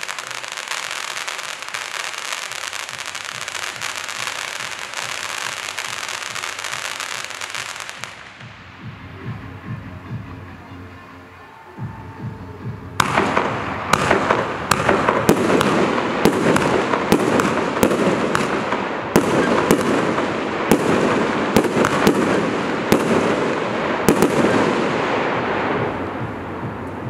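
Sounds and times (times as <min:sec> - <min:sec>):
firework bangs: 0:00.0 - 0:10.2, 0:11.8 - 0:27.0
firework rushing noise: 0:13.0 - 0:27.0.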